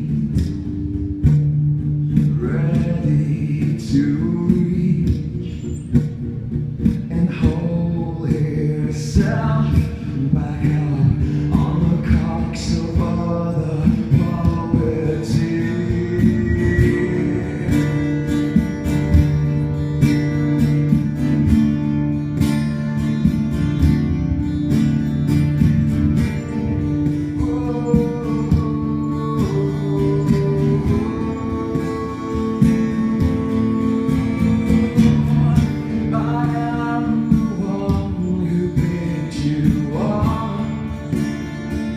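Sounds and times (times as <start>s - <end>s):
man singing: 0.0s - 0.7s, 2.1s - 6.0s, 6.9s - 19.8s, 26.9s - 41.9s
acoustic guitar strumming: 0.0s - 41.9s.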